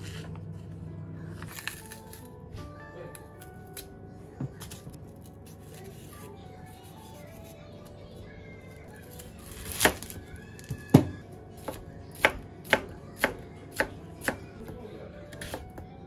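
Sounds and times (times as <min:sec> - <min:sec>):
soft background music: 0:00.0 - 0:16.0
knife chopping on cutting board: 0:11.0 - 0:14.4, 0:15.3 - 0:15.7.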